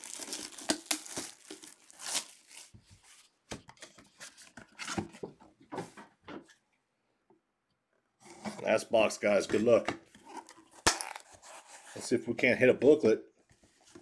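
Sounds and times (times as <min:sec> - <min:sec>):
shrink-wrap crinkling and ripping: 0:00.0 - 0:02.8, 0:10.8 - 0:11.3.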